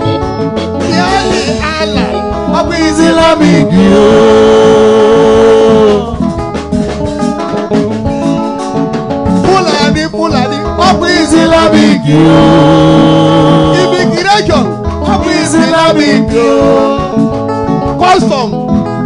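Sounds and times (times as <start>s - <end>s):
band with guitar: 0.0s - 19.0s
man singing into a microphone: 0.8s - 6.4s, 9.4s - 17.4s.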